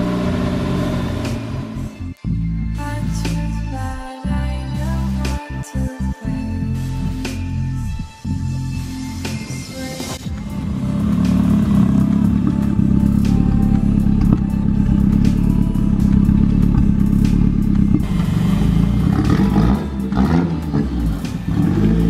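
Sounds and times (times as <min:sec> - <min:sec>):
loud car engine revving: 0:00.0 - 0:02.1, 0:10.4 - 0:22.0.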